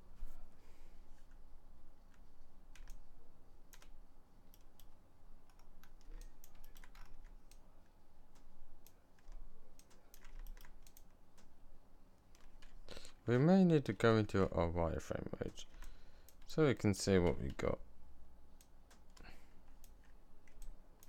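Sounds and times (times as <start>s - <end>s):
faint low hum: 0.0s - 21.0s
mouse and keyboard clicks: 2.8s - 3.0s, 3.7s - 7.6s, 8.3s - 11.5s, 18.6s - 21.0s.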